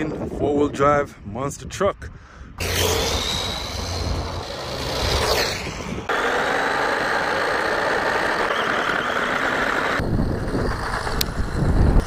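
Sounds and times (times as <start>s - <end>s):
wind noise: 0.0s - 6.1s, 10.0s - 12.0s
electric motor whine: 2.6s - 10.0s
tyre noise on asphalt: 2.6s - 12.0s.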